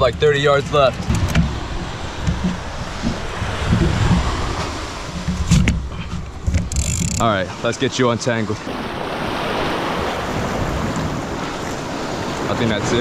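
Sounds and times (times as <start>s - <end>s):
surf washing on beach: 0.0s - 13.0s
wind buffeting microphone: 0.0s - 13.0s.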